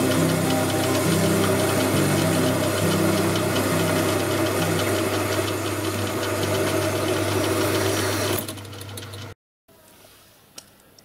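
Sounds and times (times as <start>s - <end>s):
metal lathe humming: 0.0s - 8.6s.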